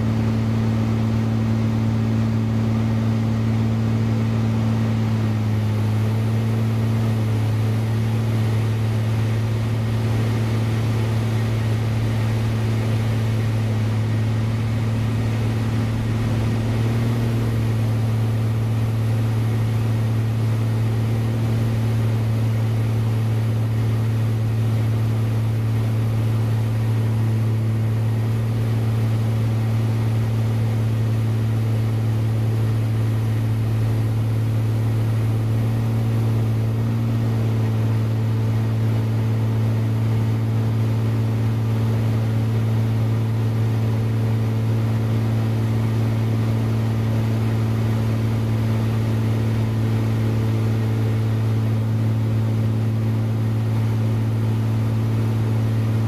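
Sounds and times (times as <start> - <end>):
propeller plane engine droning: 0.0 - 56.0.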